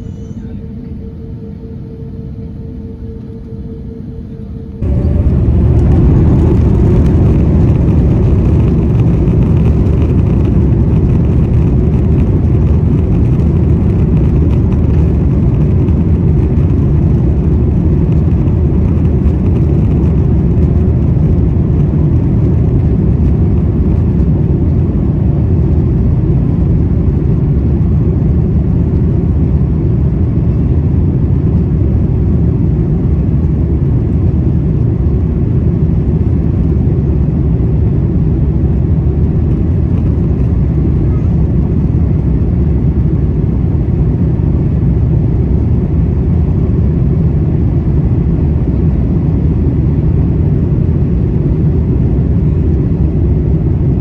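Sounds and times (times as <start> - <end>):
low rumble of aircraft engines: 0.0 - 54.0.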